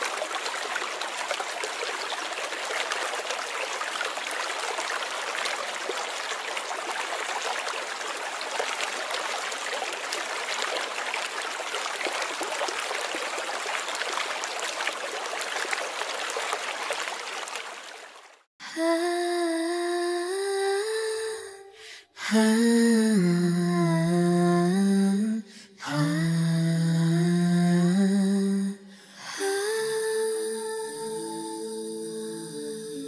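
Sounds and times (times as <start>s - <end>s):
river water flowing: 0.0s - 18.5s.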